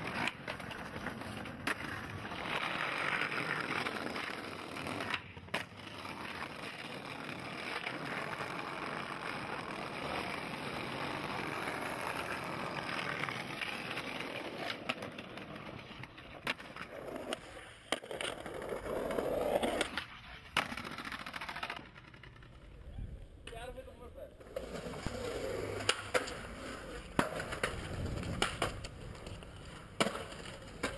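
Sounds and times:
skateboard clacks popping and landing: 0.0s - 22.7s, 24.4s - 30.9s
skateboard scrape: 0.0s - 23.3s, 24.3s - 30.9s
skateboard wheels rolling on bricks: 0.0s - 30.9s.

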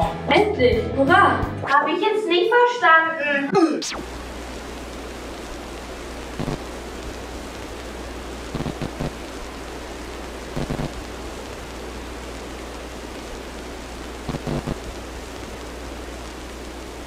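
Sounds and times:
stuttering glitch buzzes: 3.8s - 6.8s, 8.5s - 9.2s, 10.5s - 11.7s, 13.0s - 17.0s
static hiss: 3.8s - 17.0s.

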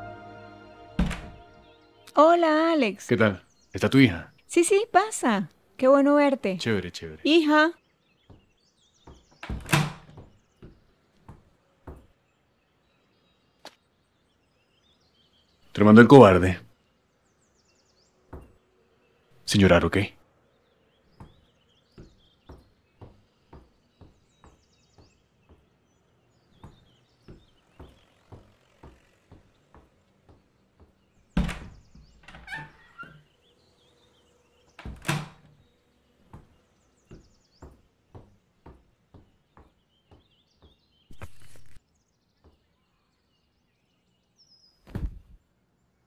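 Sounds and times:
loud thuds: 1.0s - 1.6s, 44.9s - 45.4s
soft regular knocks: 8.2s - 12.2s, 18.3s - 18.6s, 21.1s - 33.3s, 36.2s - 41.8s
paper rustling: 41.1s - 41.8s.

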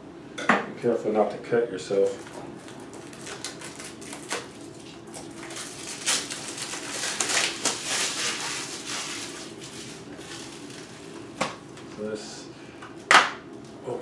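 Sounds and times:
plastic wrap crinkling and tearing: 2.2s - 11.2s.

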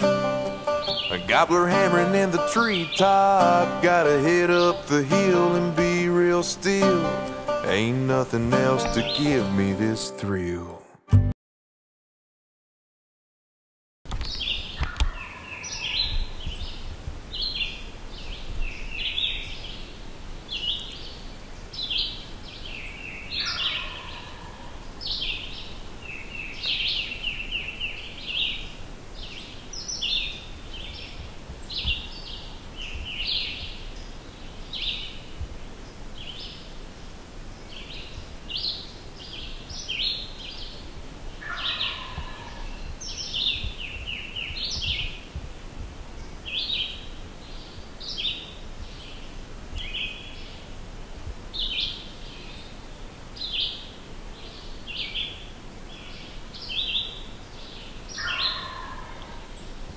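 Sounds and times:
songbirds singing: 0.0s - 10.8s, 14.1s - 45.4s, 46.1s - 59.9s
lower falling bird notes: 0.0s - 10.9s.

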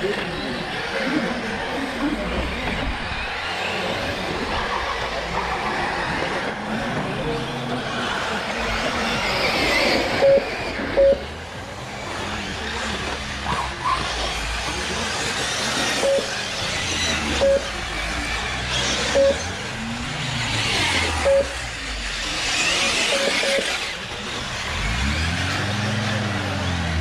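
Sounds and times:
deeper engine sound: 0.0s - 27.0s
rc car motor whine: 0.0s - 27.0s
short beeps: 10.2s - 11.3s, 16.0s - 16.4s, 17.4s - 17.7s, 19.1s - 19.4s, 21.2s - 21.6s, 23.1s - 23.6s.

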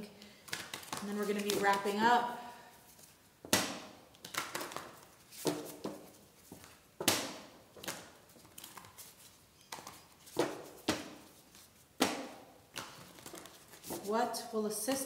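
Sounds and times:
cards shuffled by hand: 0.4s - 2.1s, 4.1s - 6.8s, 7.8s - 11.9s, 12.7s - 14.1s.

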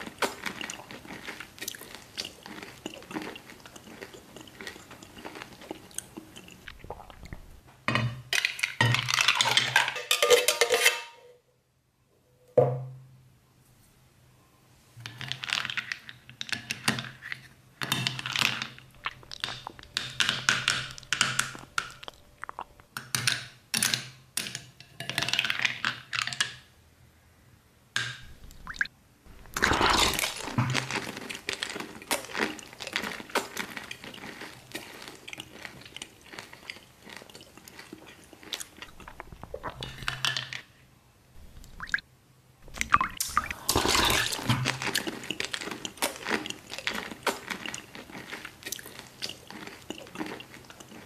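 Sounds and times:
chewing and crunching candy: 0.0s - 7.6s, 17.9s - 23.0s, 28.2s - 40.3s, 42.6s - 51.0s.

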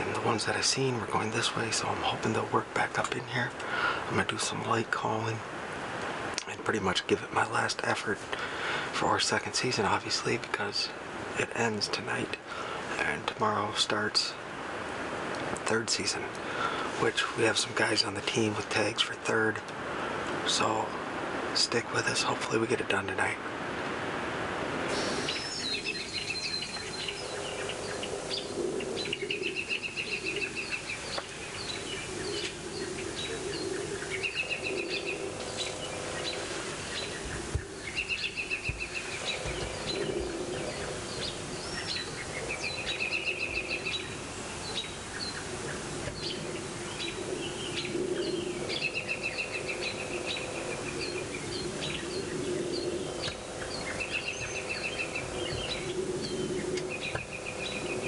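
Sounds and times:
high bird chirps: 24.9s - 45.4s
bird trilled song: 24.9s - 45.5s, 46.1s - 58.0s.

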